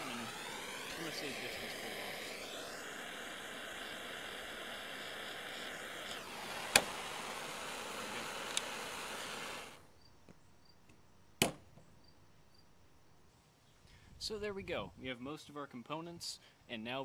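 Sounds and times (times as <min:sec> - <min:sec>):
blowtorch hissing: 0:00.0 - 0:09.9.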